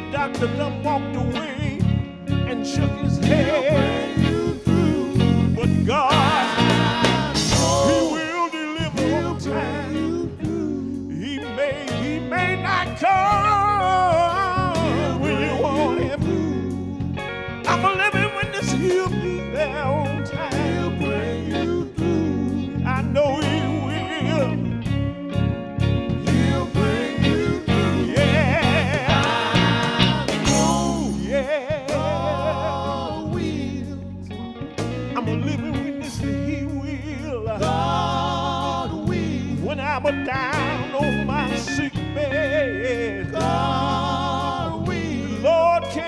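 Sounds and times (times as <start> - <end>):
man singing with vibrato: 0.0 - 24.8, 26.2 - 34.2, 35.1 - 46.0
bass guitar: 0.0 - 46.0
electric guitar: 0.0 - 46.0
steady drum beat: 6.0 - 8.4, 26.2 - 32.2.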